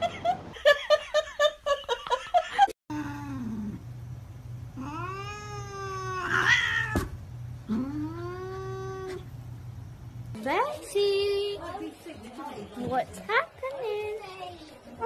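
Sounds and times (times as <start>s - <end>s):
cat yowling: 4.8s - 7.1s.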